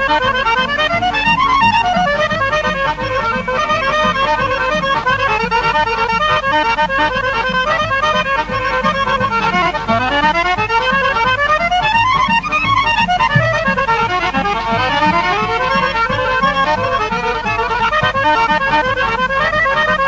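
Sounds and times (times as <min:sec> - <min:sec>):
folk band with accordion: 0:00.0 - 0:20.0
pulsing bass beat: 0:13.3 - 0:13.8.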